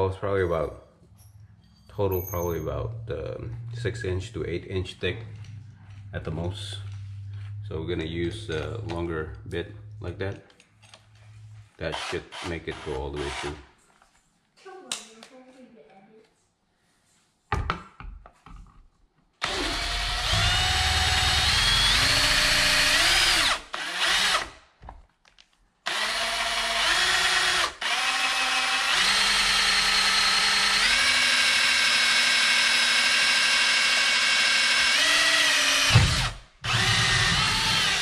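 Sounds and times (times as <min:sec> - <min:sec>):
drill motor whining: 0:19.4 - 0:24.5, 0:25.9 - 0:38.0
drill trigger clicks: 0:25.9 - 0:38.0.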